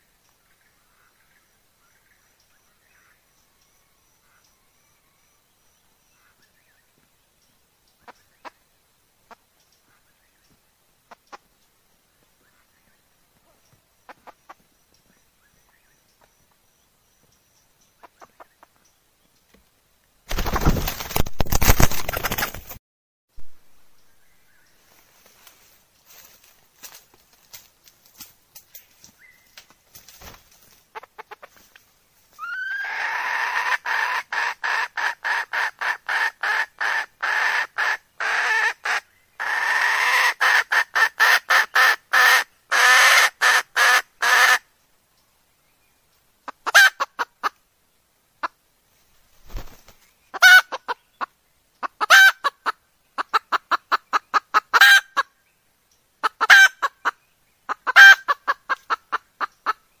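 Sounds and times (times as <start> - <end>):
hen clucking: 14.1 - 14.6, 18.0 - 18.7, 30.9 - 31.7, 32.4 - 44.6, 46.4 - 47.6, 49.6 - 55.3, 56.2 - 59.8.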